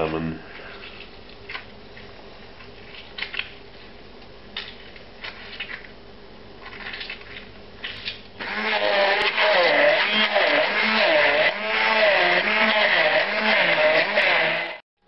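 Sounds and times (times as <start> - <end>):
immersion blender running: 8.4 - 14.8.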